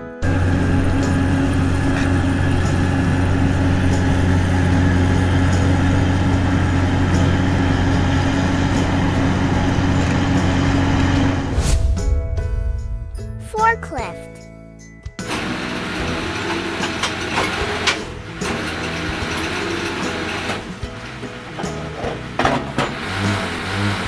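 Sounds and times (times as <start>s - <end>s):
vehicle engine running: 0.0s - 11.6s, 15.2s - 24.0s.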